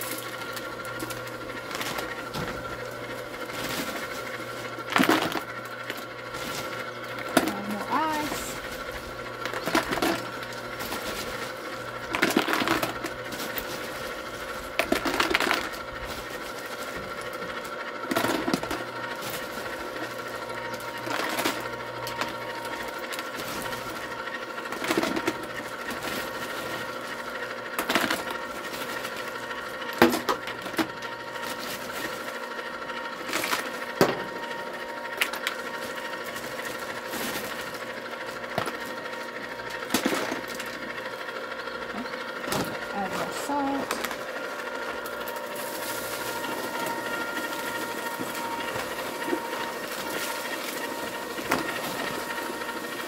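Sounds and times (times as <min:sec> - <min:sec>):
ice cream maker motor whine: 0:00.0 - 0:53.0.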